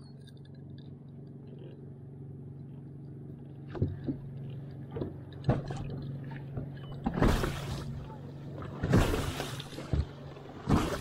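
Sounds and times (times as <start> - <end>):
boat motor humming: 0.0 - 11.0
wake slapping against hull: 4.9 - 11.0.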